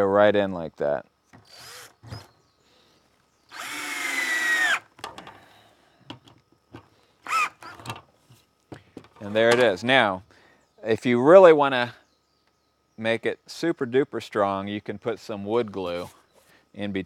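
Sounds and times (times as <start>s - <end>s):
cordless drill driving screw: 1.4s - 2.3s, 3.5s - 4.9s, 7.3s - 7.9s.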